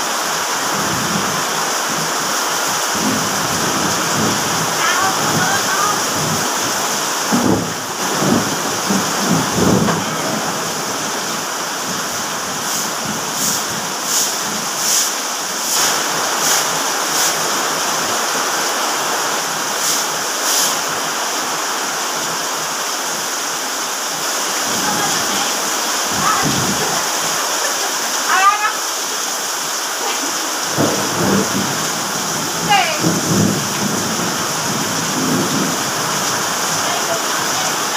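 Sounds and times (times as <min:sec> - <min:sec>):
heavy rain on concrete and roofs: 0:00.0 - 0:37.9
broom sweeping wet ground: 0:12.5 - 0:18.1, 0:19.7 - 0:21.0.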